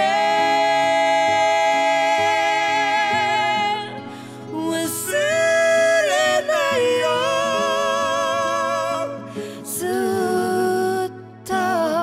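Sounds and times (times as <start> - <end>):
slow sad music: 0.0 - 12.0.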